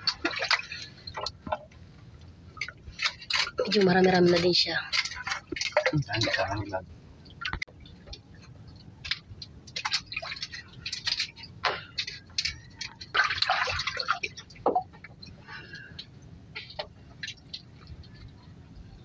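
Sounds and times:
water dripping and splashing: 0.0 - 18.4.

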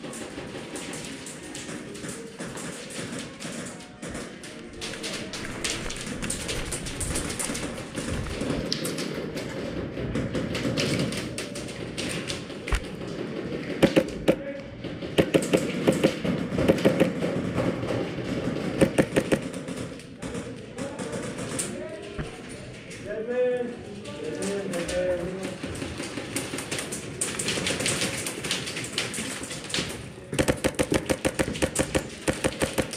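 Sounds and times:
players moving clatter: 0.0 - 32.9
airsoft gun shots: 13.8 - 14.4, 30.4 - 32.9.

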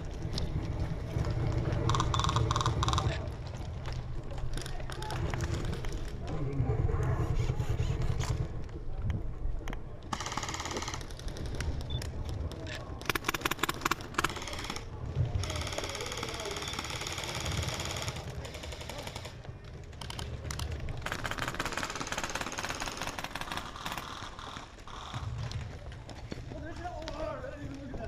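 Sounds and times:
airsoft guns firing: 10.1 - 11.8, 13.0 - 19.4, 20.0 - 25.9.

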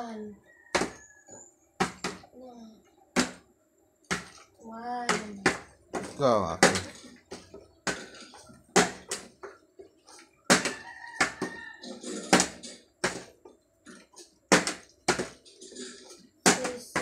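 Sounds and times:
plastic bottles clattering on tiles: 5.5 - 17.0.

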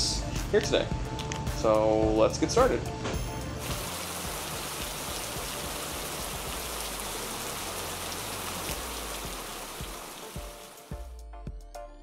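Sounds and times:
crackling hiss: 3.6 - 11.0.

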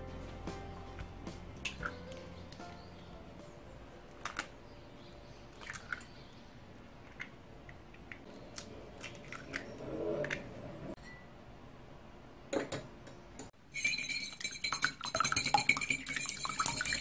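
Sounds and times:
eggshell cracking: 4.1 - 4.6.

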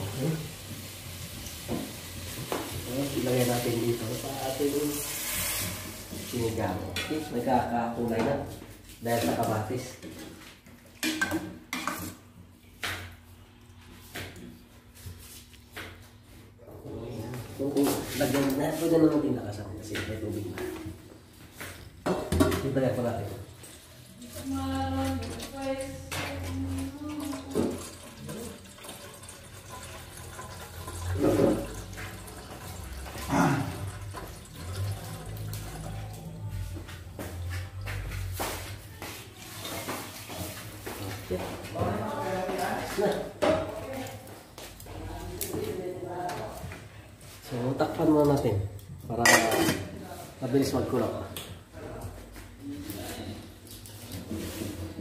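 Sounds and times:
water running into metal pot: 0.0 - 7.0, 26.5 - 36.2
metal ladle scraping pot: 4.9 - 6.3.

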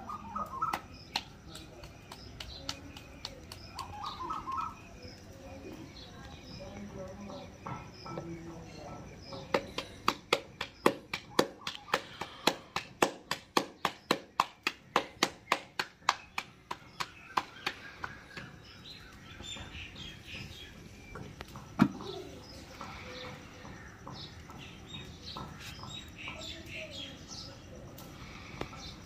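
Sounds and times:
birds chirping: 0.0 - 29.0
hands slapping dough: 0.4 - 4.3, 9.5 - 18.8.

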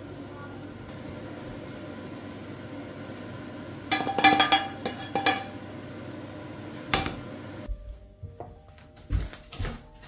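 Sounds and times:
tableware clinking: 3.9 - 5.6.

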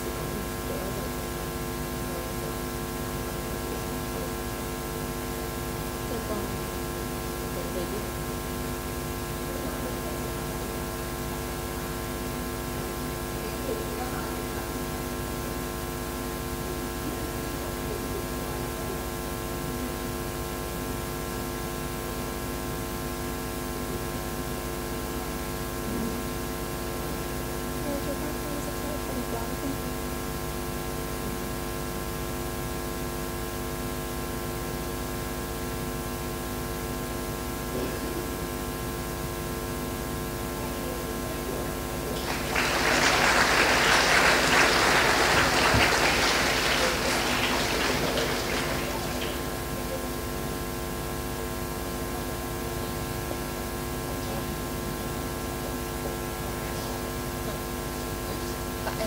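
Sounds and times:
electrical mains hum with hiss: 0.0 - 59.0
faint voices murmuring: 40.7 - 50.2.

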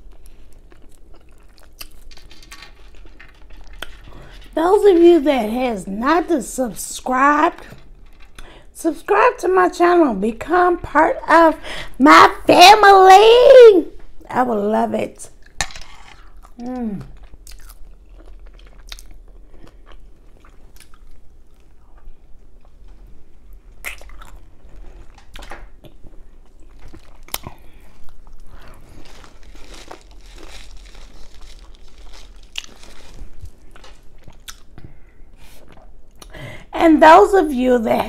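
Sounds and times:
person chewing food: 0.0 - 2.1, 15.4 - 22.6, 23.8 - 36.3
crunching: 23.8 - 34.7.

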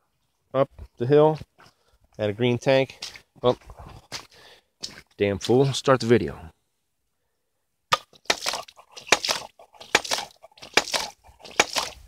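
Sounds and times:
water spurting splash: 8.2 - 12.0.

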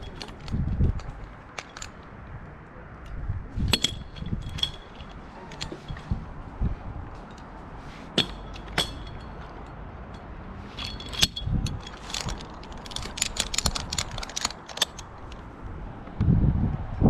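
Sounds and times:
metal hardware clinking: 0.0 - 2.2, 3.0 - 6.2, 8.1 - 15.5
rope rustling: 0.0 - 2.2, 3.5 - 9.8, 10.5 - 15.6.

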